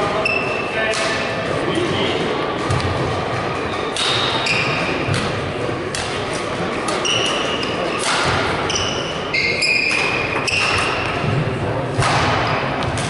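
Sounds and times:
low hall chatter: 0.0 - 13.0
racket hitting shuttlecock: 3.9 - 5.3, 5.9 - 6.2, 6.8 - 9.1, 9.8 - 11.2, 11.9 - 13.0.

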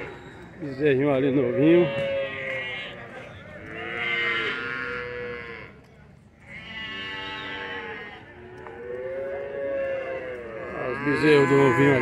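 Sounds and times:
calves mooing: 1.3 - 3.0, 3.6 - 5.7, 6.5 - 8.3, 9.3 - 12.0.

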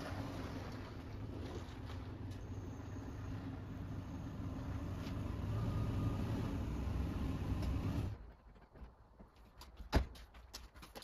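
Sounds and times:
truck engine humming: 0.0 - 8.7.

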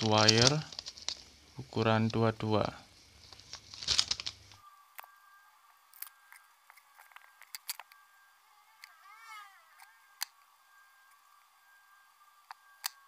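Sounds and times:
small metal parts clicking: 0.0 - 1.3, 3.3 - 4.6, 5.9 - 8.0
rustle: 0.0 - 11.3.

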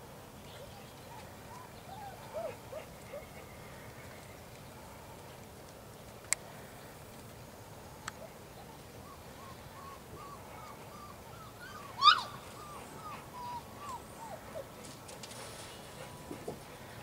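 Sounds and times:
puppies whimpering: 9.1 - 14.7
puppy yelp: 9.8 - 14.4.

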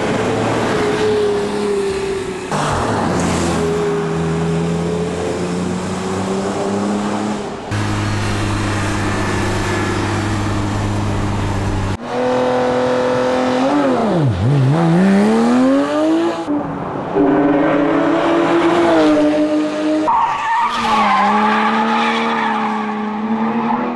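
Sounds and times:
race car engine revving: 5.5 - 16.5.

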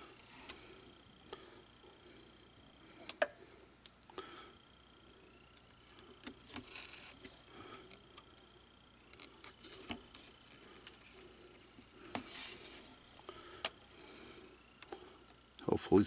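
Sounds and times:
faint clicks and handling rustle: 5.6 - 15.7.

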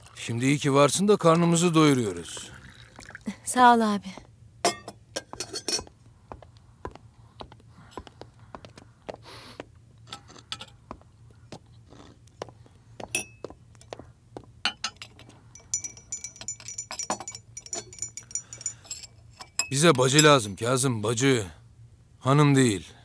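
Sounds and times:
glasses and dishes clinking: 4.6 - 5.9, 13.1 - 14.0, 14.6 - 20.6.

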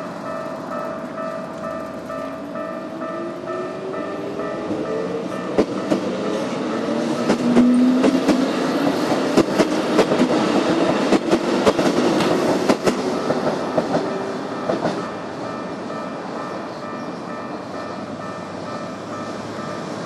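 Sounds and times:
train wheels clacking over rail joints: 5.4 - 15.2.

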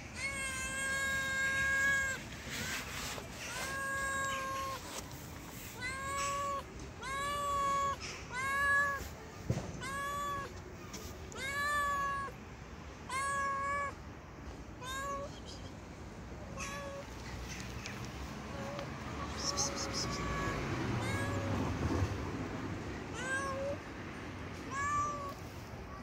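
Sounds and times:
cat meowing: 0.1 - 5.0, 5.6 - 9.2, 9.8 - 10.6, 11.3 - 12.4, 13.1 - 14.0, 14.8 - 15.4, 16.5 - 17.2, 18.5 - 21.8, 23.1 - 23.8, 24.7 - 26.0.

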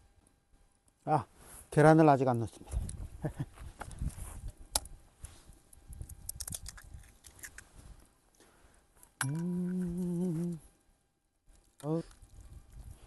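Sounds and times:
man humming low note: 9.2 - 10.7.

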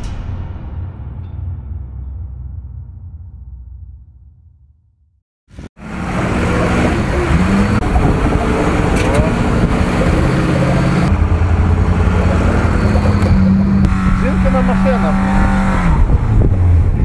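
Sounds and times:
music: 0.0 - 5.2
diesel truck engine: 5.5 - 17.0.

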